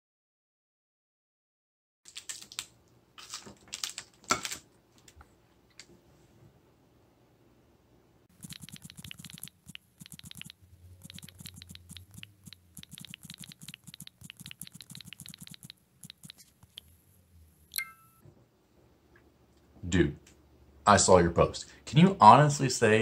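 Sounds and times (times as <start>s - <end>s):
taps on phone keyboard: 8.4s - 16.4s.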